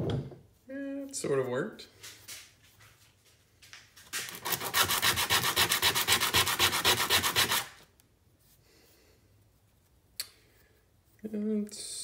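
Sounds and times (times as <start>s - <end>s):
wood rubbing on sandpaper: 4.3s - 7.8s.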